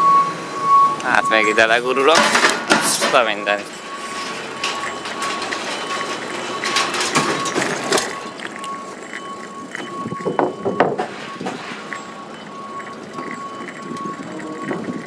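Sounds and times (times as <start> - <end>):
bicycle rattling and clicking: 2.1 - 15.0.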